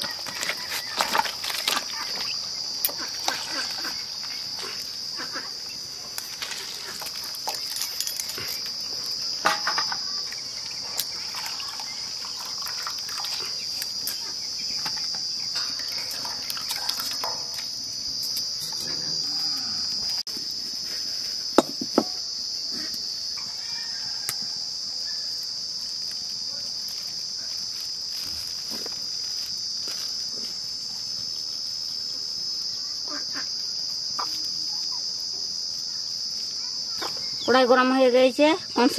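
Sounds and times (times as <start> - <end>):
insect chirring: 0.0 - 38.9
water splashing in steel bowl: 2.9 - 4.0, 10.6 - 17.6.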